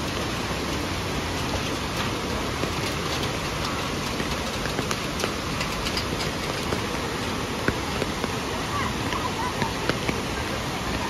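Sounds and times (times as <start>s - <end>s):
rain falling: 0.0s - 11.0s.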